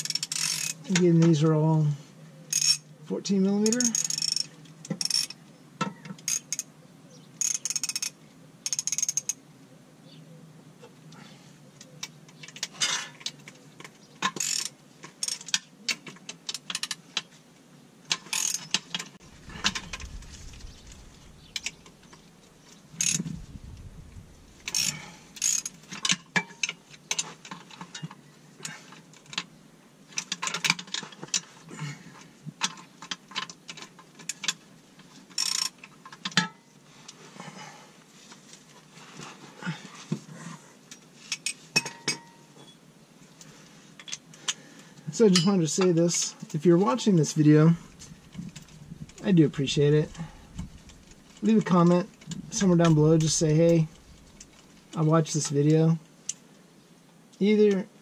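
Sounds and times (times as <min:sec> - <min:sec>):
socket ratchet clicking: 0:24.7 - 0:25.8.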